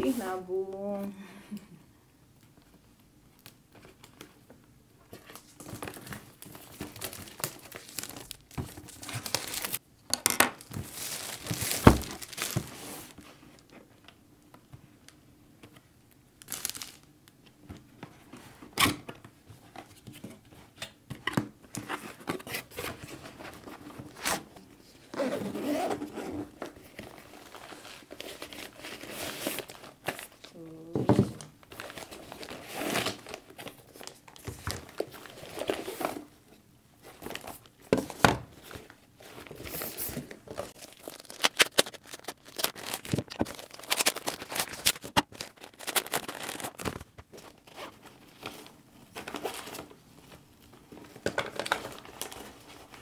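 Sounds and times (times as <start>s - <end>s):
plastic wrap crinkling: 5.1s - 9.8s, 10.4s - 13.7s, 16.4s - 17.1s, 21.8s - 36.3s, 38.5s - 53.0s.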